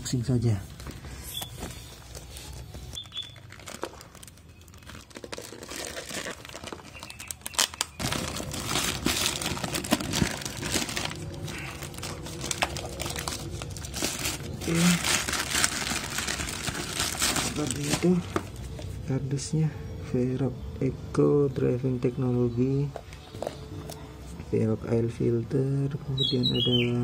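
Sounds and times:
plastic bag crinkling: 0:01.8 - 0:19.0.

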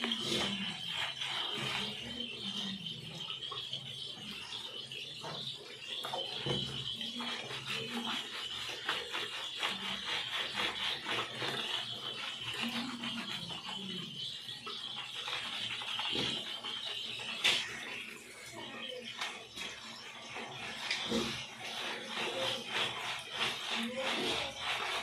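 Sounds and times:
wet rubbing strokes on fur: 0:00.0 - 0:03.6, 0:05.5 - 0:25.0.

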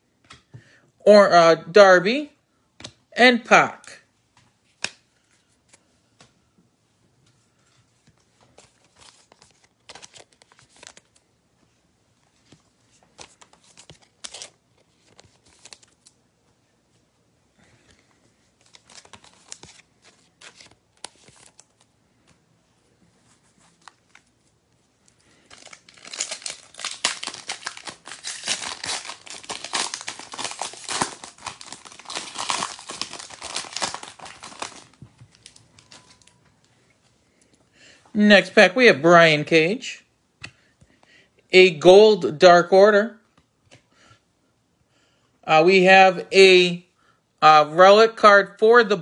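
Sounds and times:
cards rustling and clicking: 0:04.3 - 0:06.4, 0:08.0 - 0:11.2, 0:12.3 - 0:16.2, 0:18.6 - 0:22.4, 0:23.3 - 0:36.4
foil wrapper tearing and crinkling: 0:25.4 - 0:36.2.

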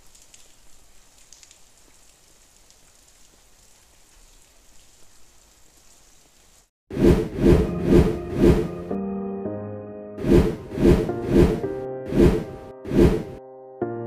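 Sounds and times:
light rain falling: 0:00.0 - 0:06.7.

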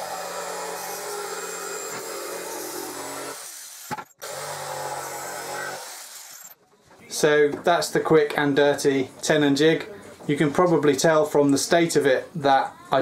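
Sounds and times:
jigsaw cutting wood panel: 0:00.0 - 0:06.6.

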